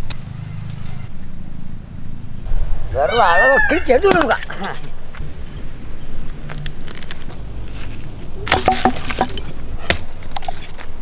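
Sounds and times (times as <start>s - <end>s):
high-pitched insect drone: 2.5s - 7.6s, 9.7s - 11.0s
dry wood cracking: 6.5s - 10.0s.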